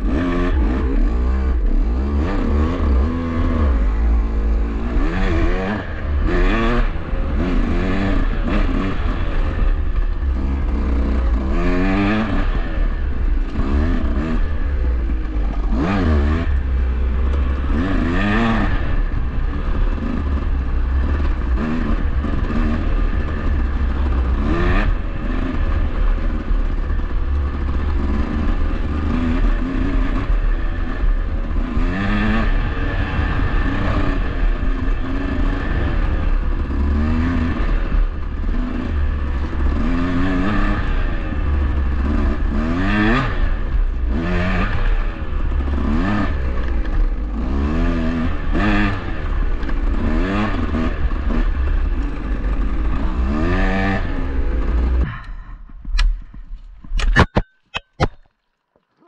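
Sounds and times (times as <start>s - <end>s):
dirt bike engine revving: 0.0s - 57.3s.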